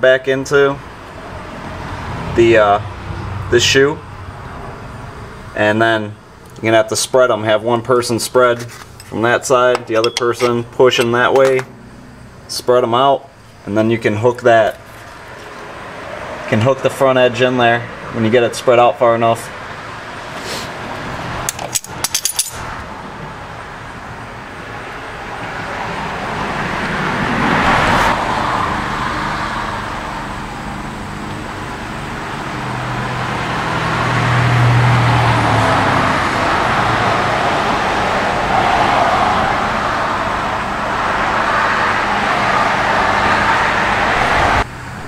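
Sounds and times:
passing road traffic: 0:00.0 - 0:45.0
low engine hum: 0:22.5 - 0:45.0.

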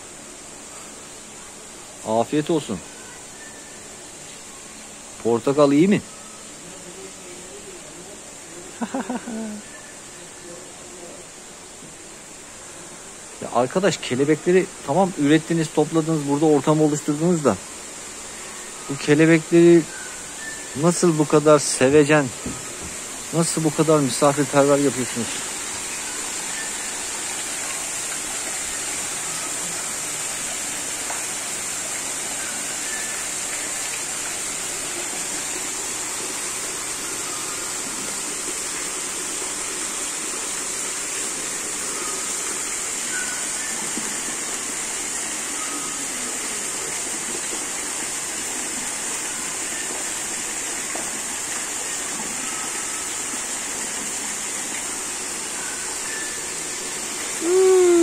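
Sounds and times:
high hiss: 0:00.0 - 0:58.0
waterfall rushing into pond: 0:00.0 - 0:58.0.

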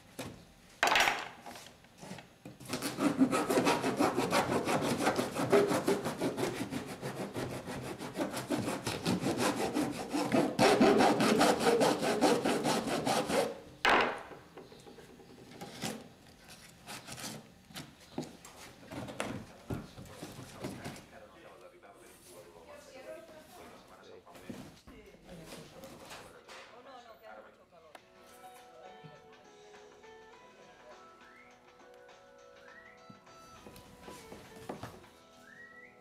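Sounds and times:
metal file scraping: 0:02.7 - 0:13.6.

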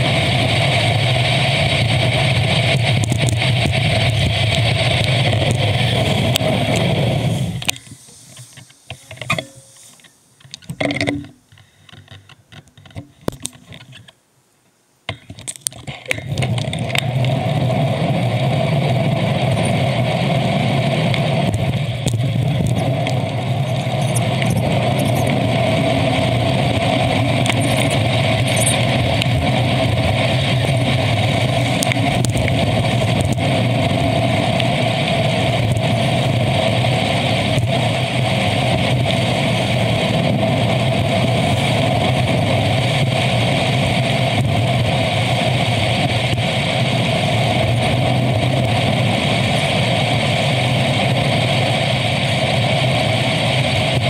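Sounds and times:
wind and road noise: 0:00.0 - 0:14.2, 0:15.1 - 0:54.0
scattered clicks: 0:21.0 - 0:25.5, 0:26.7 - 0:33.5.

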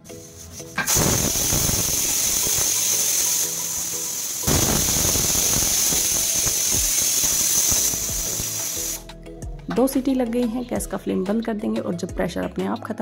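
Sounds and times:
pressure cooker whistle: 0:00.8 - 0:09.0.

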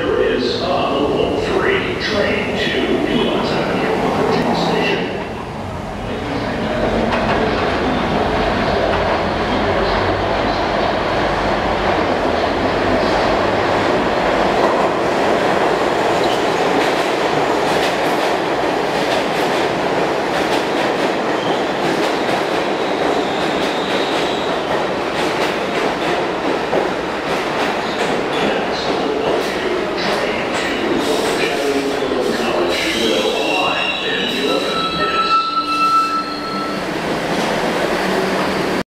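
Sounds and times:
train wheels rumbling on rail: 0:00.0 - 0:35.0, 0:35.6 - 0:38.8
clickety-clack over rail joints: 0:06.8 - 0:07.8, 0:11.8 - 0:32.0
faint high squeal: 0:33.7 - 0:36.8.

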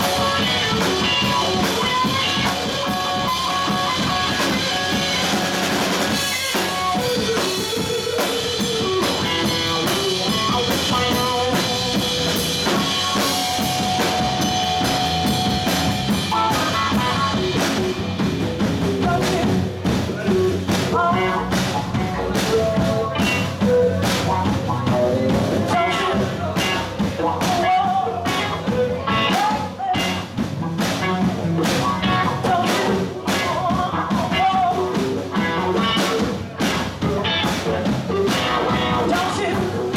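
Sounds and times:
blues-rock band playing: 0:00.0 - 0:39.9
woman singing: 0:20.8 - 0:22.2, 0:25.7 - 0:30.3, 0:32.0 - 0:35.1, 0:38.5 - 0:39.9.

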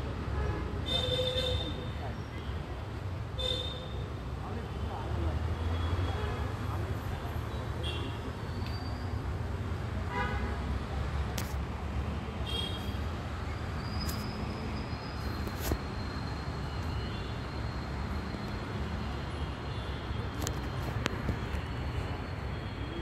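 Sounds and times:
distant road traffic rumble: 0:00.0 - 0:23.0.

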